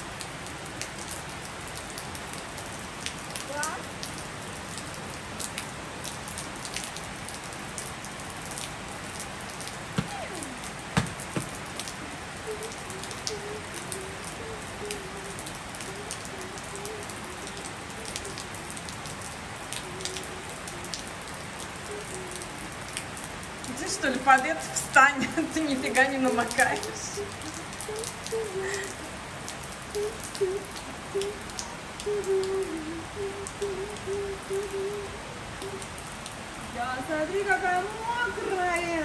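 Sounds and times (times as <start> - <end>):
rain on a tiled roof: 0.0 - 39.0
louder knocks: 11.0 - 11.6.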